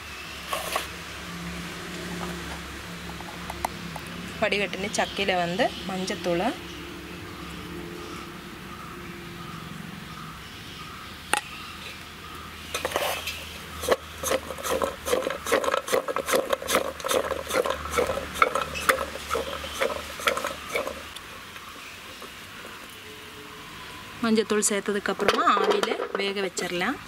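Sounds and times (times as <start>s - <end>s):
fruit chunks clattering in metal bowl: 25.2s - 26.4s.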